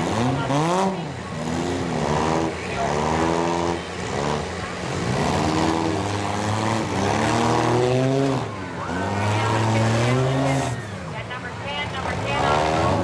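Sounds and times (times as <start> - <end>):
car engines revving hard: 0.0 - 13.0.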